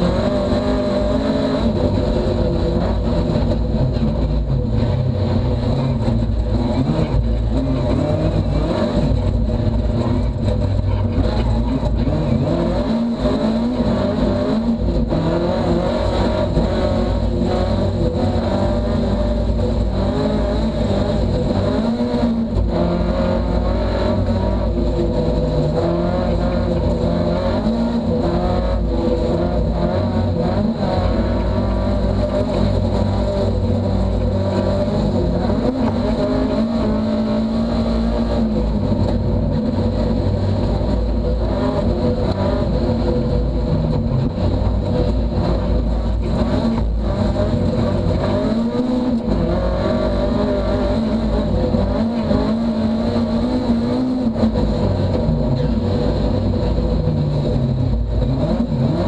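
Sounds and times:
car engine running hard: 0:00.0 - 0:59.0.

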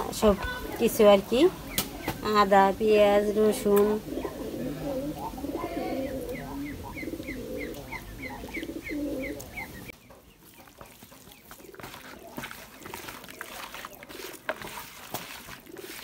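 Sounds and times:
birds chirping: 0:00.0 - 0:16.0
hand kneading raw chicken: 0:07.7 - 0:16.0.

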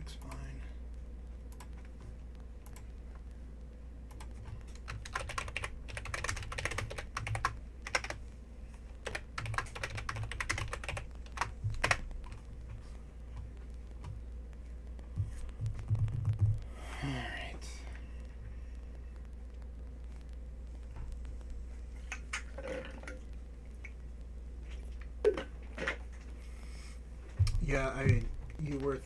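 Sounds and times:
low steady hum: 0:00.0 - 0:29.0
keyboard typing clicks: 0:01.5 - 0:02.0, 0:02.6 - 0:02.9, 0:04.1 - 0:08.2, 0:09.0 - 0:12.4.

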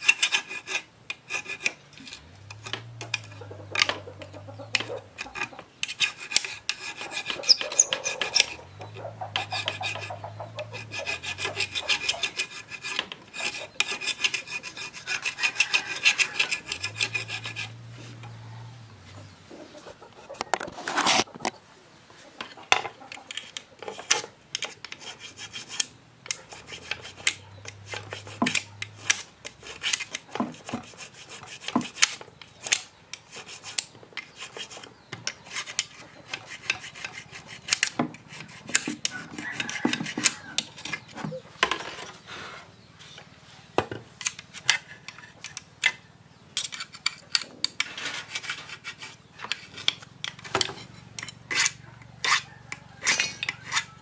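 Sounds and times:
tools scraping wood: 0:00.0 - 0:21.5, 0:22.4 - 0:54.0
sharp clicks and knocks: 0:01.1 - 0:12.2.

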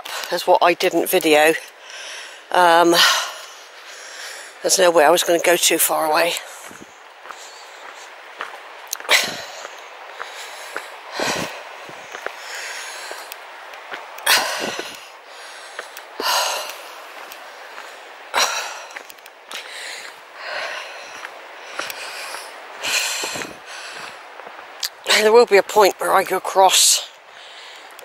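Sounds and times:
person breathing heavily: 0:01.7 - 0:04.6, 0:06.4 - 0:08.2, 0:09.0 - 0:13.6, 0:14.2 - 0:24.4, 0:27.2 - 0:28.0.

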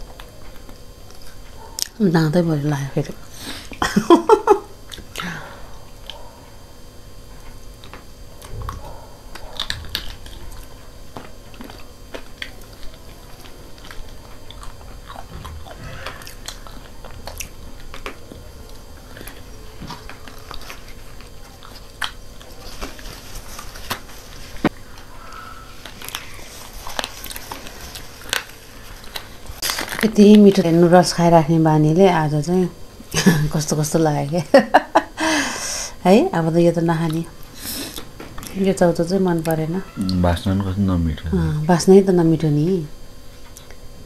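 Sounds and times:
people chewing crunchy food: 0:00.0 - 0:02.0, 0:02.6 - 0:31.4, 0:36.9 - 0:38.7, 0:39.3 - 0:41.7, 0:43.2 - 0:44.0
small clicks and crunches: 0:25.8 - 0:30.7.

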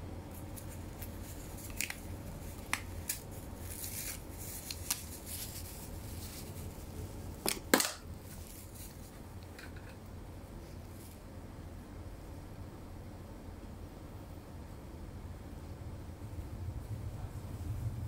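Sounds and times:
steady low hum: 0:00.0 - 0:18.0
crackle: 0:00.3 - 0:07.0.

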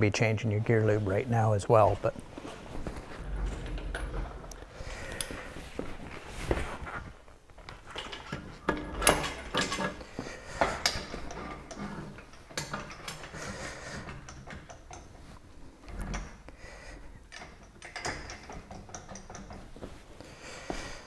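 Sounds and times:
parts being handled clicking: 0:03.8 - 0:05.4, 0:07.5 - 0:16.6, 0:17.2 - 0:20.0.

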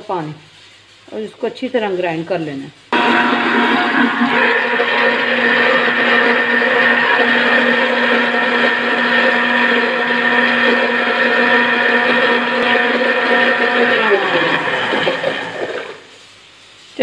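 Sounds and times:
mixer-grinder motor whine: 0:03.0 - 0:16.1.

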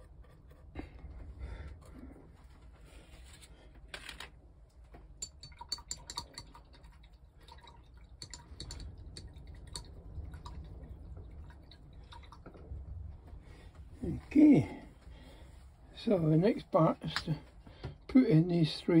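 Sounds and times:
low steady hum: 0:00.0 - 0:19.0
small objects clicking and tapping: 0:04.9 - 0:06.6, 0:08.2 - 0:09.9.

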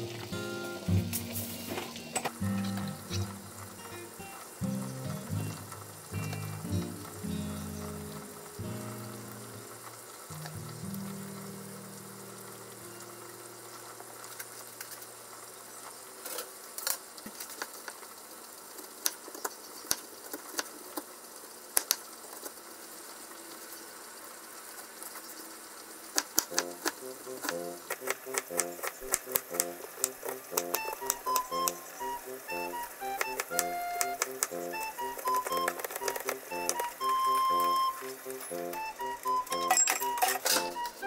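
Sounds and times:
soft background music: 0:00.0 - 0:14.4, 0:26.5 - 0:41.0
steady hiss: 0:00.0 - 0:41.0.

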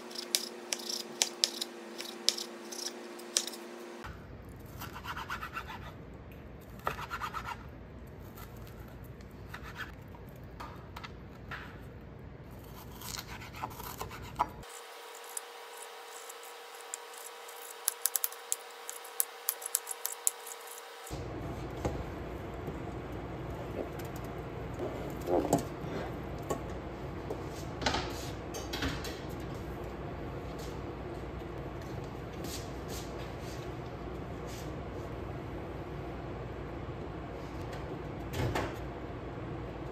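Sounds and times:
knife chopping on cutting board: 0:00.1 - 0:03.6.

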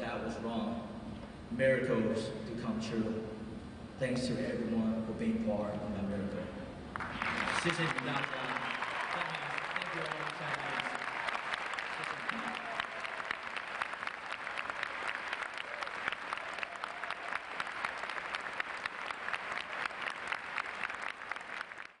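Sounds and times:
audience applauding: 0:06.9 - 0:22.0.

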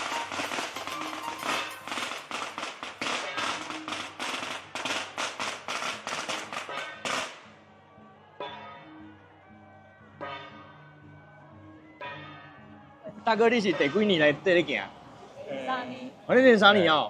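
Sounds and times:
firecrackers popping: 0:00.0 - 0:07.4
procession music: 0:00.0 - 0:15.3.

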